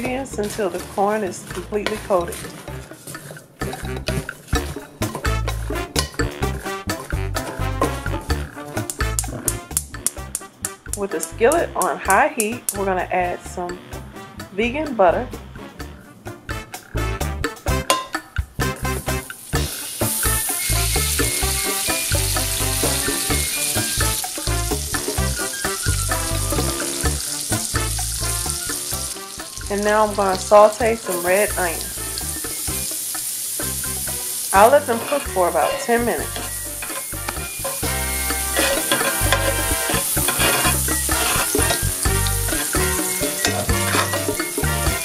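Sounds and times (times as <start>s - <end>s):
background music with bass line: 0.0s - 33.0s, 33.6s - 45.0s
spatula scraping a skillet: 0.3s - 5.8s, 34.5s - 44.6s
butter sizzling in skillet: 19.0s - 45.0s
music with pulsing bass: 36.2s - 45.0s.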